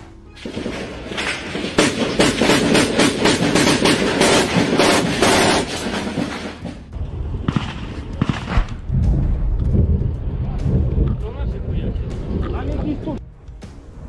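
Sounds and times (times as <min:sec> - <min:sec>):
automatic gunfire: 0:07.5 - 0:08.7
single gunshots: 0:07.5 - 0:08.8.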